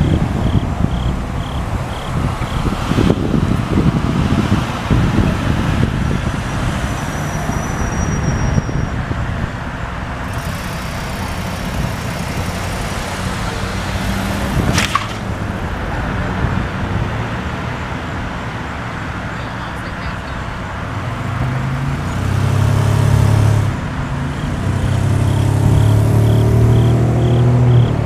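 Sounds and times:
wind noise on microphone: 0.0 - 17.6
vehicle engine running: 9.9 - 16.0, 23.2 - 28.0.

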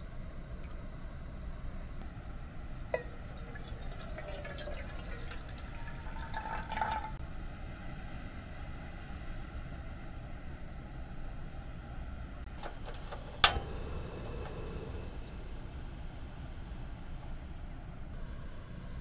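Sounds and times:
water pouring into a kettle: 2.9 - 7.2, 12.8 - 17.9.

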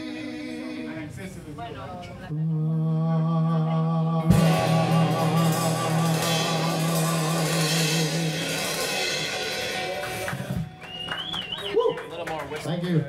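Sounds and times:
held low note: 2.3 - 10.7
live band playing: 4.3 - 11.7.

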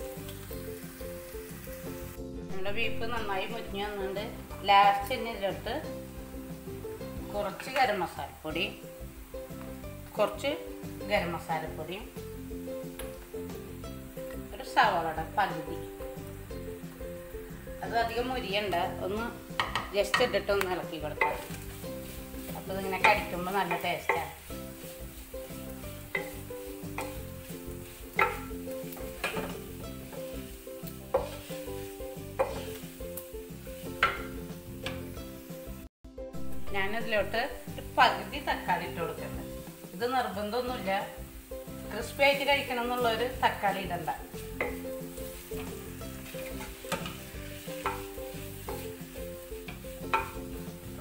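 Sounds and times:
meat sizzling in oil: 0.0 - 51.0
wooden spatula scraping pan: 17.7 - 35.2, 42.1 - 51.0
spatula knocking against pan: 19.6 - 20.3, 26.0 - 27.3, 28.1 - 29.7, 32.3 - 32.8, 34.0 - 35.1, 44.6 - 45.0, 47.8 - 48.1, 49.7 - 50.5.

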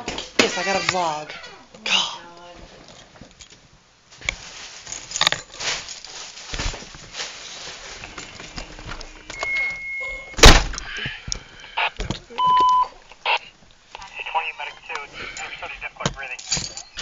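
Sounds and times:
rustling and knocking: 2.6 - 9.4
steady electronic beep: 9.3 - 10.4.

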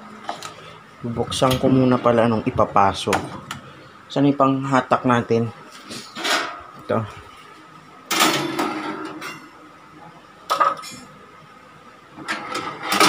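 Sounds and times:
metal kitchenware clattering: 6.1 - 6.6, 10.5 - 11.1.

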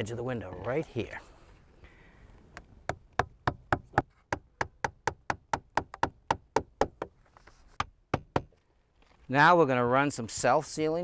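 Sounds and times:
hammer striking nails: 2.9 - 7.2, 7.8 - 8.6.

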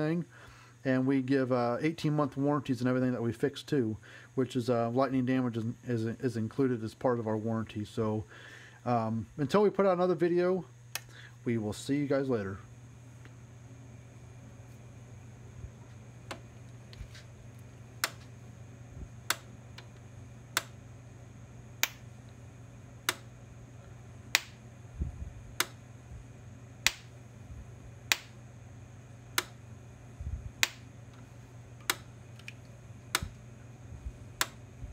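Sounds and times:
faint low hum: 0.0 - 34.9
electric fence clicking: 16.2 - 18.4, 19.2 - 20.8, 21.8 - 22.4, 23.0 - 23.4, 24.2 - 24.6, 25.5 - 25.8, 26.8 - 27.2, 28.0 - 28.4, 29.3 - 29.6, 30.6 - 33.5, 34.3 - 34.6.

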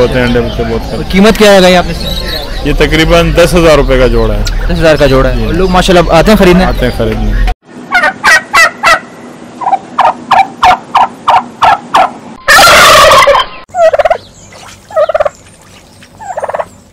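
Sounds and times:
turkeys calling: 0.0 - 16.9
turkey gobbling: 6.6 - 14.2, 14.9 - 15.4, 16.2 - 16.8.

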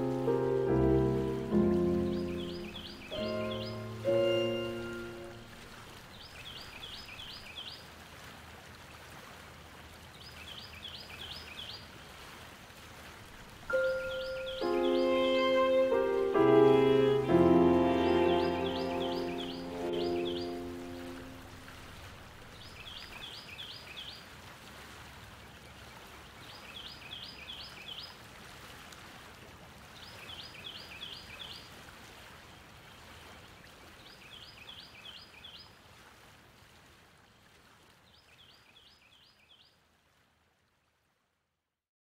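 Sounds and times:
songbird singing high notes: 0.6 - 5.6, 13.7 - 21.6.

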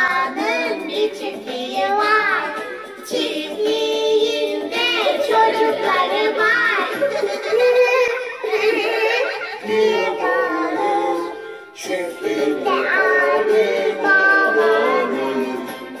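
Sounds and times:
girl singing: 0.0 - 7.0, 12.3 - 15.5
musical accompaniment: 0.0 - 16.0.

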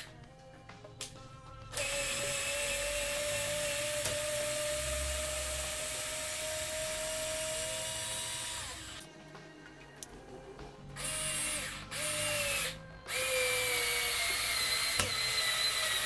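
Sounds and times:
cordless screwdriver whining: 1.8 - 9.0, 11.0 - 16.0.

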